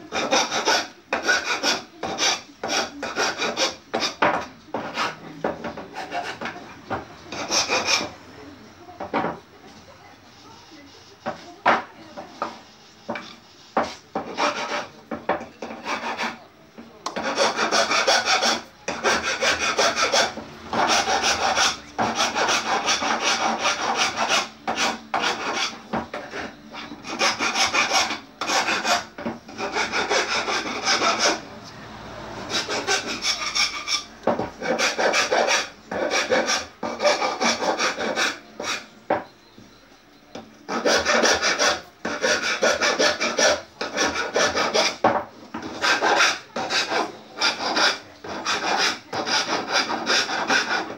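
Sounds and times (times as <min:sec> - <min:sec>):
abrasive tool scraping wood: 0:00.1 - 0:08.2, 0:11.1 - 0:16.4, 0:17.1 - 0:31.4, 0:32.4 - 0:39.3, 0:40.7 - 0:50.9.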